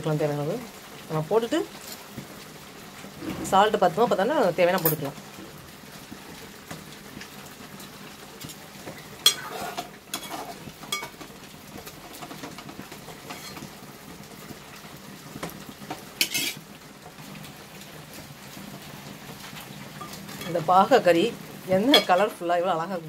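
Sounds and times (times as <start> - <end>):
curry simmering: 0.0 - 23.0
metal spoon scraping a pot: 9.2 - 11.1, 13.3 - 13.6, 16.2 - 16.6.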